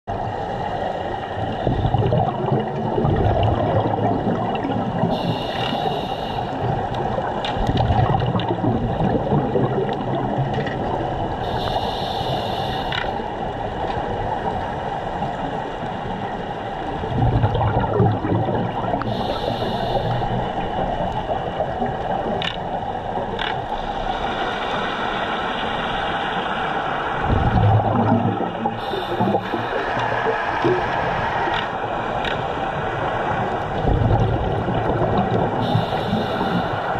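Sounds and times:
underwater regulator bubbling: 1.4s - 13.2s, 17.0s - 24.2s, 27.2s - 32.4s, 33.5s - 36.9s
diver breath hisses: 5.1s - 6.6s, 11.4s - 13.2s, 19.1s - 20.4s, 28.8s - 31.5s, 35.6s - 36.9s.

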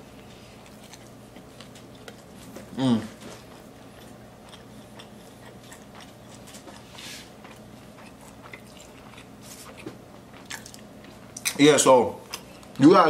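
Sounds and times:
person chewing food: 0.0s - 11.6s, 12.2s - 12.8s.

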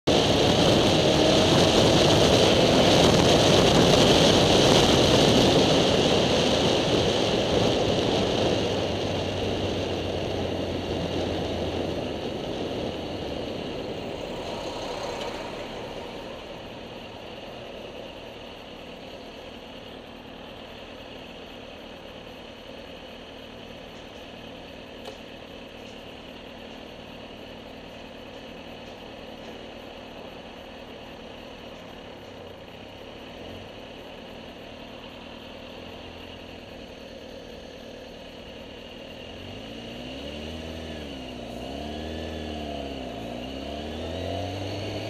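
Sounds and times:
vehicle wind and road noise: 0.0s - 45.0s
low hum: 8.6s - 39.0s.

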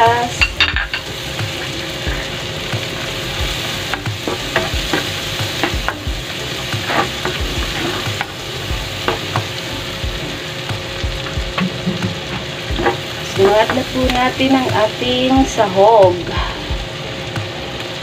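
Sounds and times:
onion sizzling in a frying pan: 0.0s - 18.0s
spatula scraping a pan: 0.9s - 8.4s.

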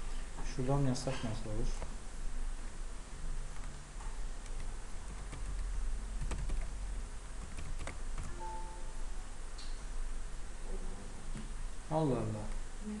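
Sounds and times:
steady low hum: 0.0s - 13.0s
keyboard keystrokes: 7.4s - 8.6s.

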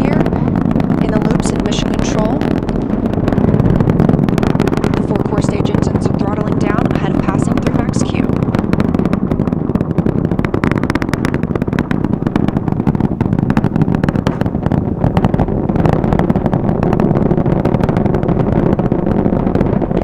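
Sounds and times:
rocket roaring and crackling: 0.0s - 20.0s.

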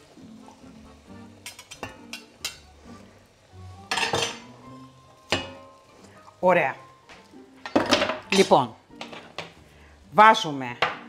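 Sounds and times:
metal utensils clinking on cookware: 1.4s - 2.7s, 3.9s - 4.5s, 5.3s - 5.8s, 7.6s - 9.6s.

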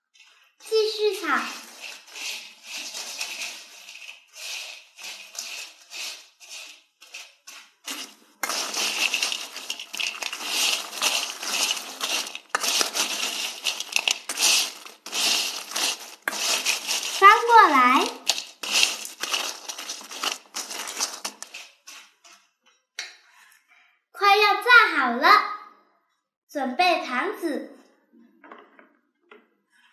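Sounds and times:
spatula scraping fries in wok: 0.2s - 22.4s.

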